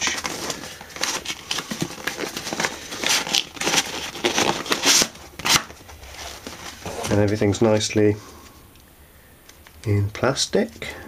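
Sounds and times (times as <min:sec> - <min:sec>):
cardboard box rustling and scraping: 0:00.0 - 0:07.7.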